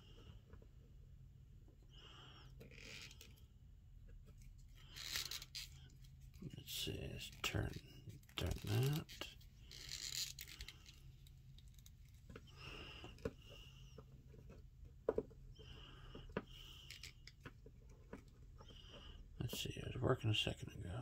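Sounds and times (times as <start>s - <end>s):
low steady hum: 0.0s - 21.0s
plastic figure rubbing: 2.6s - 3.4s, 4.2s - 15.3s, 16.0s - 19.2s.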